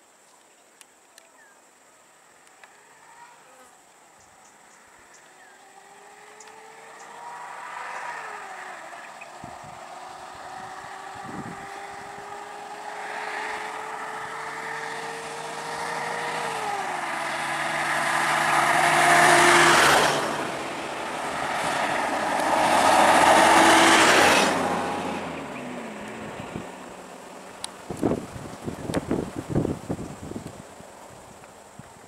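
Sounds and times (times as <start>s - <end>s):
vehicle engines running: 4.1s - 31.9s.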